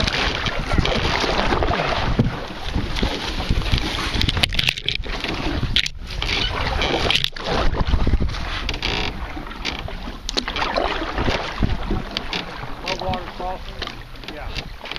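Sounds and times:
paddle strokes splashing in water: 0.0s - 14.9s.

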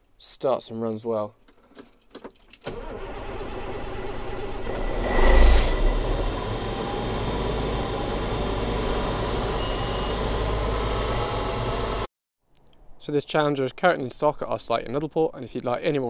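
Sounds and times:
tractor diesel engine running: 2.7s - 12.1s.

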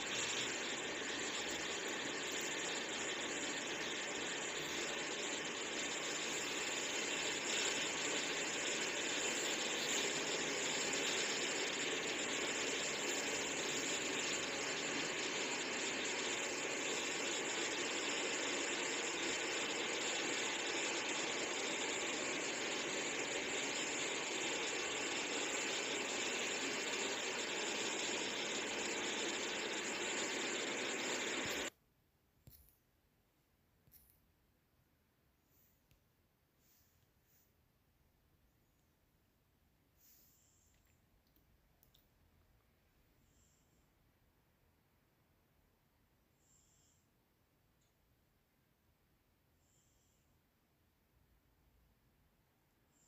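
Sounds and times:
steady hissing noise: 0.0s - 31.7s, 39.9s - 42.4s.

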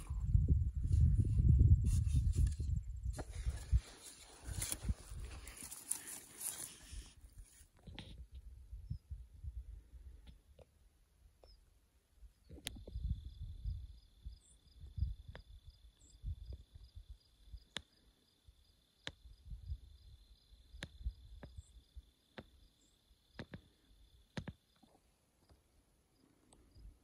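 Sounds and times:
soft insect chirp: 12.4s - 27.0s
faint insect trill: 12.7s - 27.0s.

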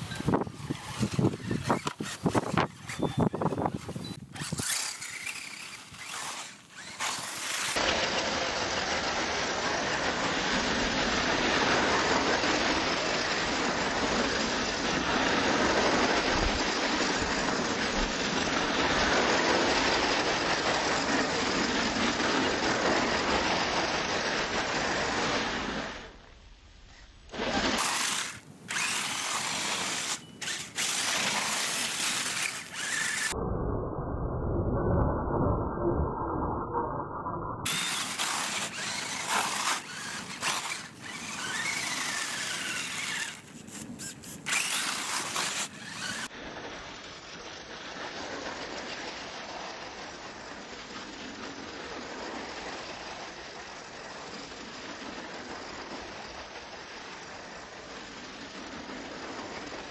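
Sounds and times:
electric motor and gears whining: 0.0s - 8.0s, 27.3s - 33.4s, 37.6s - 46.3s.

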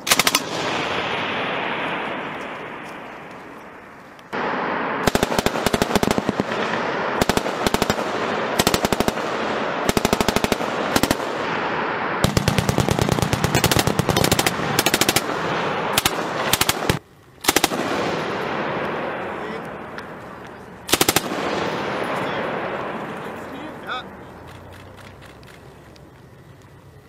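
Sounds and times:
machine gun bursts: 0.0s - 0.6s, 9.8s - 11.3s, 12.2s - 17.8s, 20.9s - 21.4s
gunfire echo: 0.0s - 25.0s.

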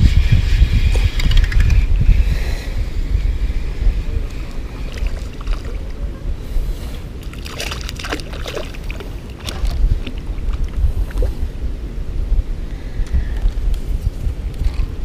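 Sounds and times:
wind rumbling on microphone: 0.0s - 15.0s
water against kayak hull: 4.2s - 11.5s
splashes: 4.9s - 5.9s, 7.2s - 11.3s.

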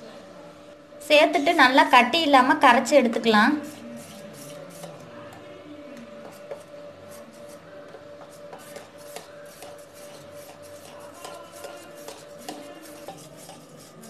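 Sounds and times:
fork whisking in a metal bowl: 3.4s - 14.0s.

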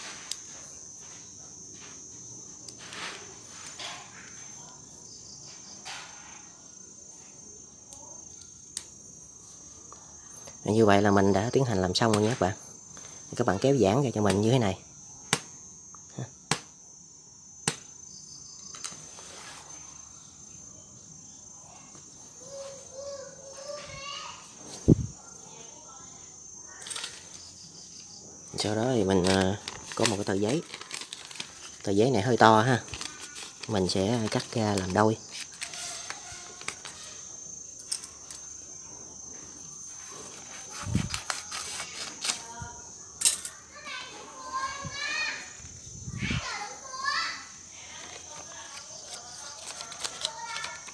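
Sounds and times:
insects chirring: 0.0s - 50.9s
paper handling: 29.0s - 37.2s, 39.9s - 42.6s, 48.0s - 50.9s
scissors cutting paper: 40.5s - 42.5s, 48.2s - 50.9s.

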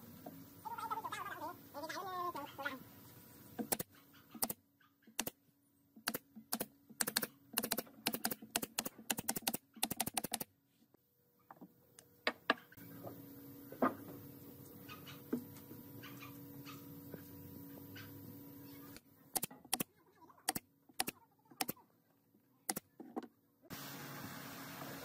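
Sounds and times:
scattered clicks: 6.0s - 10.5s, 19.4s - 19.9s, 20.5s - 21.8s.

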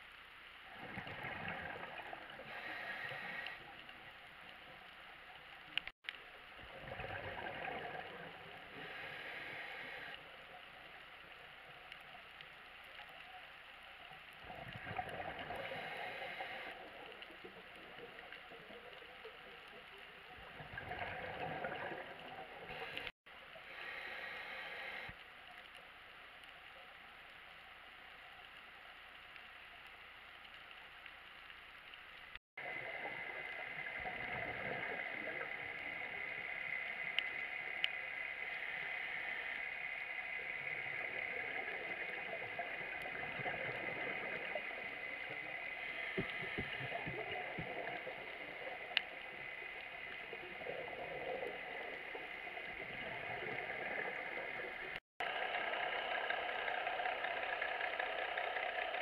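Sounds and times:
exhaled bubbles gurgling: 0.7s - 4.2s, 6.6s - 10.2s, 14.4s - 23.1s, 32.6s - 55.0s
regulator inhaling hiss: 2.4s - 3.9s, 8.7s - 10.2s, 15.5s - 16.8s, 22.7s - 25.2s, 44.4s - 48.9s.

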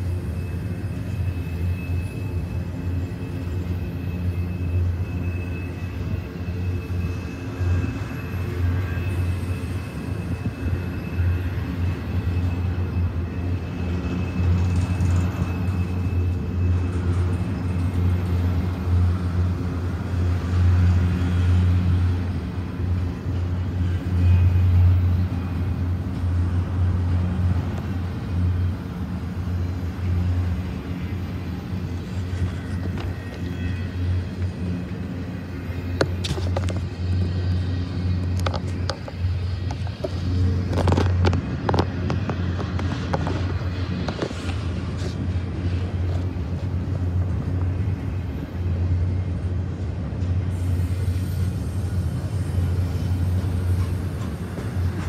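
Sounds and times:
train wheels rumbling on rail: 0.0s - 55.0s.

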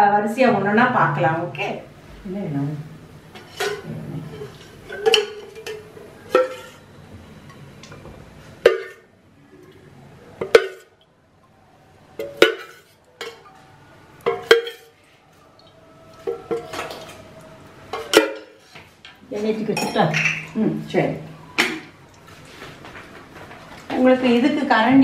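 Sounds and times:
metal pots and utensils clanking: 3.3s - 9.8s, 10.4s - 11.0s, 12.2s - 13.6s, 14.2s - 15.0s, 15.6s - 22.0s.

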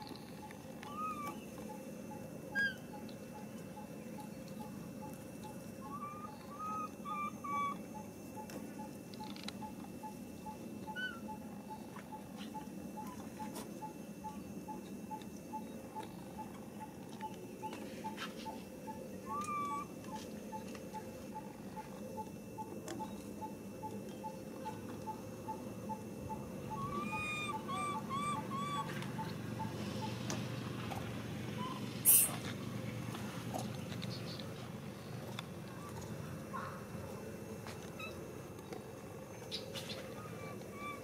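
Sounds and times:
outdoor background noise: 0.0s - 41.0s
high-pitched animal calls: 0.4s - 5.2s, 5.8s - 17.0s, 17.6s - 30.2s, 39.5s - 41.0s.

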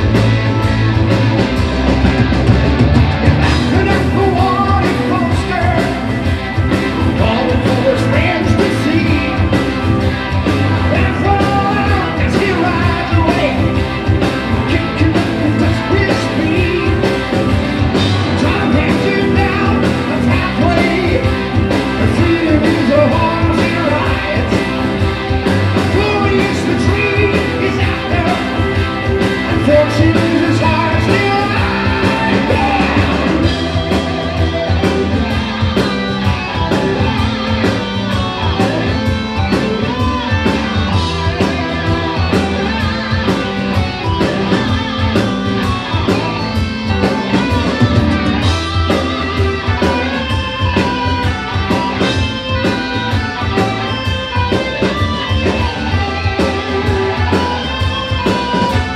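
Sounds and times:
bass guitar: 0.0s - 58.9s
drum kit beat: 0.0s - 58.9s
electric guitar: 0.0s - 58.9s
man singing: 3.4s - 9.9s, 10.6s - 25.0s, 25.6s - 33.9s.

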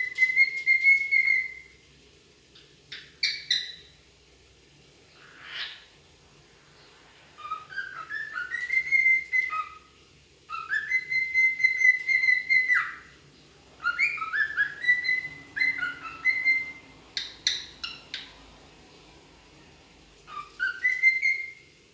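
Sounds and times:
cockatiel chirps: 0.0s - 1.7s, 2.9s - 4.0s, 5.2s - 5.9s, 7.4s - 9.9s, 10.5s - 13.1s, 13.8s - 18.3s, 20.3s - 21.7s
cockatiel whistling: 0.0s - 1.8s, 2.9s - 3.9s, 7.4s - 9.9s, 10.5s - 13.1s, 13.8s - 18.2s, 20.3s - 21.7s.

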